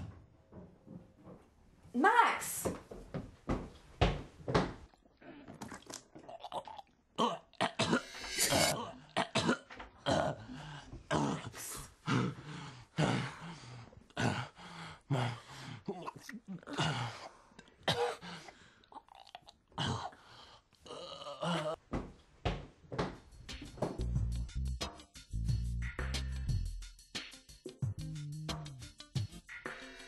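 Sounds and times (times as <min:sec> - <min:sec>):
person coughing and choking: 0:06.4 - 0:10.5, 0:16.0 - 0:18.4.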